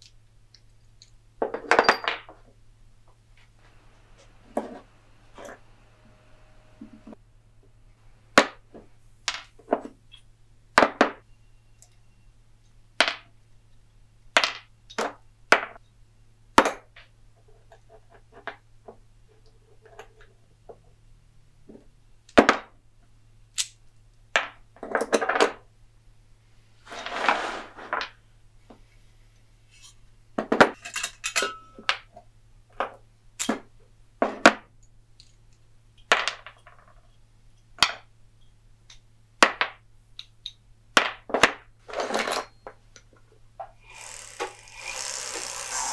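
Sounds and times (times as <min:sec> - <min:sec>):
metal parts clinking on workbench: 0:01.5 - 0:02.3.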